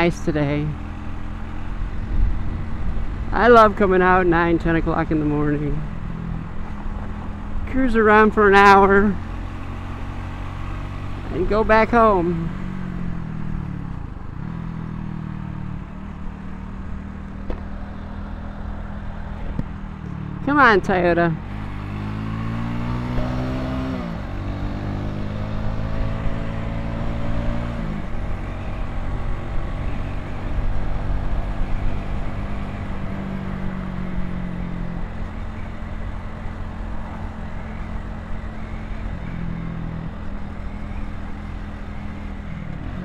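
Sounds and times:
motorcycle engine accelerating: 0.0 - 43.0
wind noise on microphone: 1.7 - 4.2.

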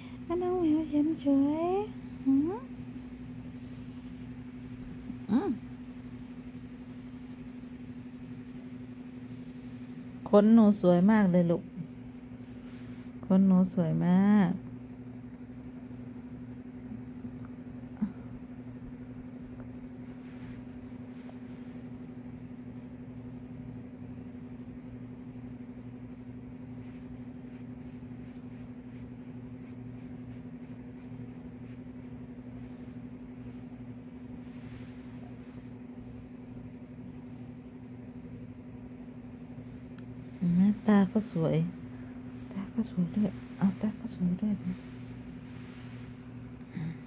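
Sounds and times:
steady machine hum: 0.0 - 47.0.

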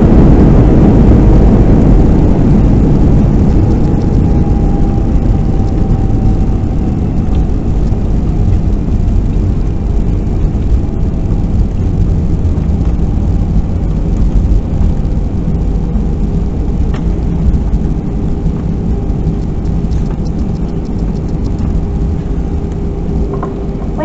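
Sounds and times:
jet engine and airflow rumble: 0.0 - 24.0.

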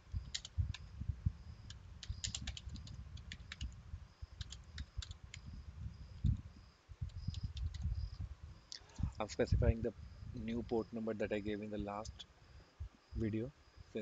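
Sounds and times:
typing on a computer keyboard: 0.2 - 0.8, 2.0 - 3.8, 4.4 - 5.5, 7.1 - 7.9.

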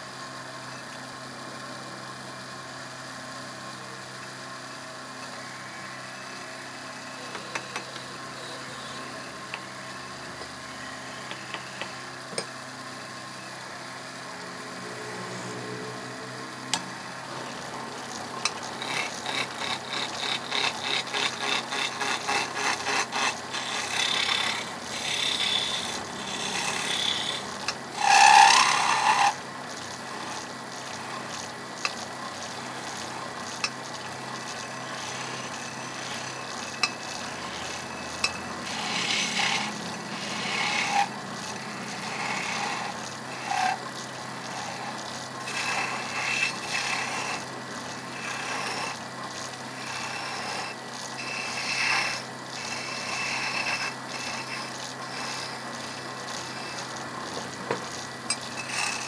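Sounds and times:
chisel shaving wood on a lathe: 7.2 - 9.7, 10.7 - 12.0, 16.7 - 59.0.

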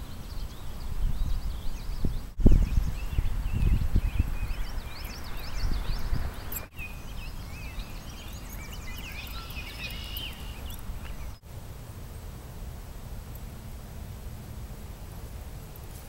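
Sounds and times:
birds chirping and singing: 0.3 - 11.4.

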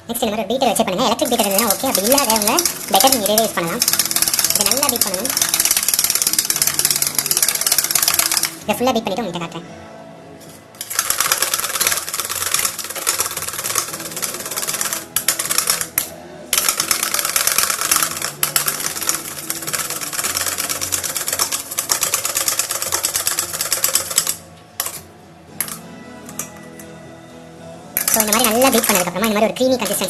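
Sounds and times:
whisk clattering against metal bowl: 1.2 - 8.6, 10.8 - 16.0, 16.6 - 25.0, 28.0 - 30.0.

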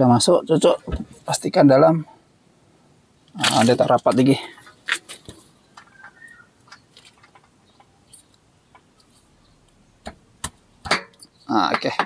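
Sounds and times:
faint clicks and taps: 4.9 - 10.6.

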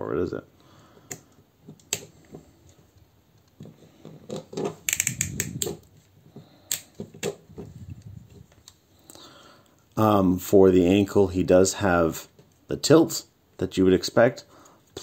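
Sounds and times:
plastic toy parts clicking: 4.3 - 5.8.

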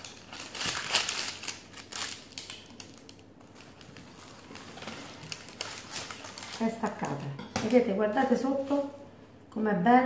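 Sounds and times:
pastry and parchment crackling: 0.0 - 7.3.

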